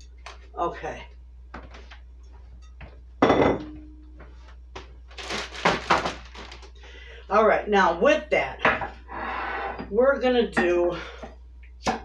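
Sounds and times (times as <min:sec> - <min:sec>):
dishes knocking on wooden table: 0:03.2 - 0:03.8
plastic bag crinkling: 0:05.1 - 0:06.8.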